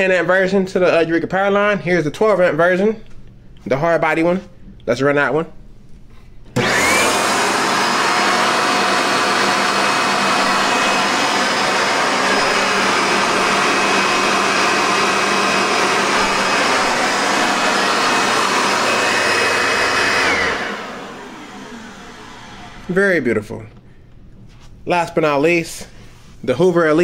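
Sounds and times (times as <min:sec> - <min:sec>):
vacuum cleaner motor whine: 0:06.6 - 0:23.5.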